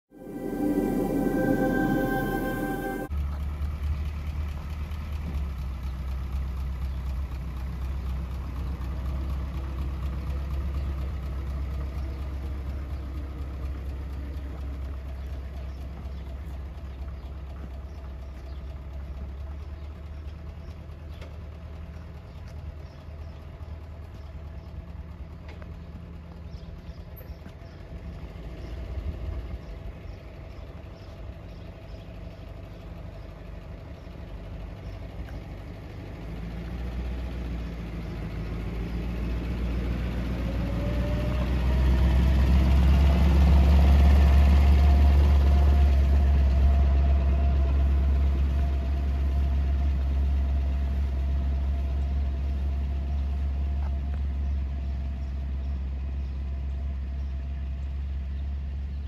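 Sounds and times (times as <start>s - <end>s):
faint rising whine: 0.0s - 3.1s
tractor engine passing: 0.0s - 3.6s.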